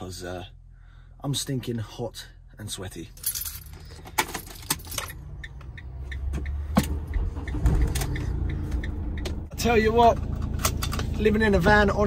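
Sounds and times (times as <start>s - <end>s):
keys jangling in ignition: 3.2s - 5.2s
van engine starting and running: 3.7s - 12.0s.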